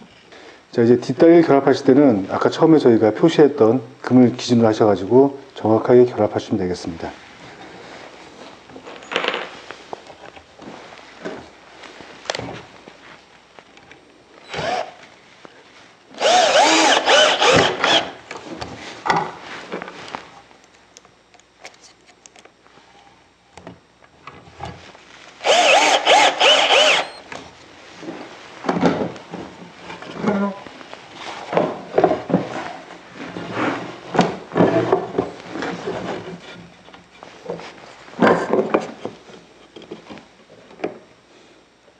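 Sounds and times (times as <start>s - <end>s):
cordless drill whirring: 14.4s - 15.0s, 16.2s - 18.2s, 25.4s - 27.2s.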